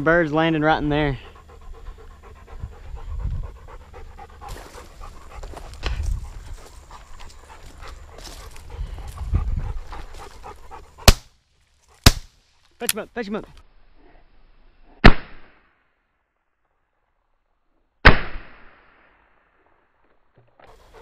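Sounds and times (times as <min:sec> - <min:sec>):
dog panting: 0:00.5 - 0:11.2, 0:20.7 - 0:21.0
shotgun shot: 0:12.0 - 0:12.3, 0:15.0 - 0:15.6, 0:18.0 - 0:19.2.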